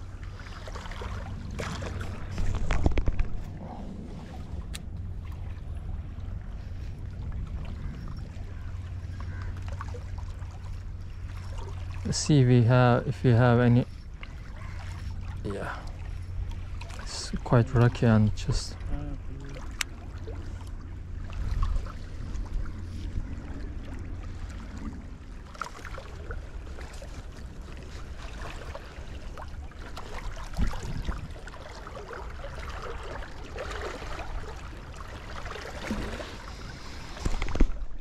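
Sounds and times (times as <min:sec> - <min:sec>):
wind rumbling on microphone: 0:00.0 - 0:11.9, 0:17.9 - 0:33.5
water lapping against rocks: 0:00.0 - 0:12.4, 0:13.2 - 0:38.0.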